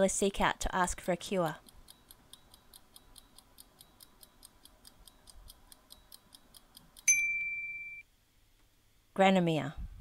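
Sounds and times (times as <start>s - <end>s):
clock-like timer ticks: 1.4s - 7.2s
bell-like ding: 7.1s - 8.0s.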